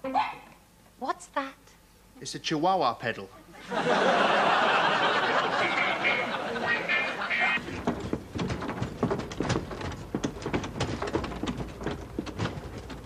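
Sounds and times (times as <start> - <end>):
rapid knocks and clicks: 7.6 - 13.0.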